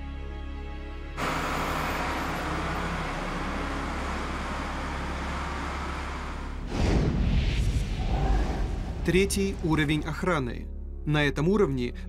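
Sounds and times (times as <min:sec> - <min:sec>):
diesel lorry engine and tyre rumble: 0:01.2 - 0:07.1
low boom: 0:06.5 - 0:10.2.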